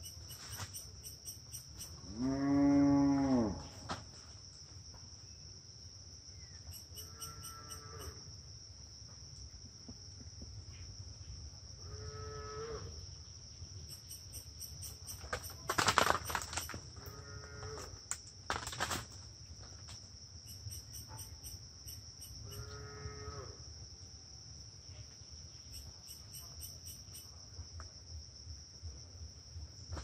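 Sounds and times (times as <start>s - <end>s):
high insect drone: 0.0s - 30.0s
cow mooing: 2.1s - 3.7s, 7.0s - 8.2s
crackling: 15.2s - 16.8s.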